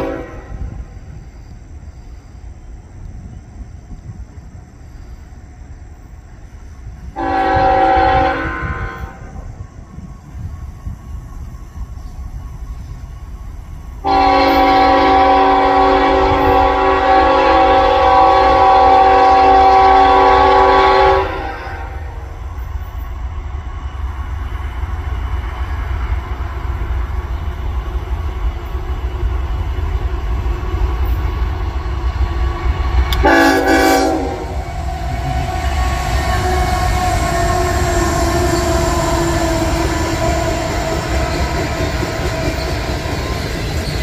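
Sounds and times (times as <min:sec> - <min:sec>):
locomotive air horn blasts: 0:00.0 - 0:00.8, 0:07.2 - 0:09.4, 0:14.0 - 0:22.3, 0:33.1 - 0:39.7
locomotives rumbling past: 0:07.0 - 0:44.0.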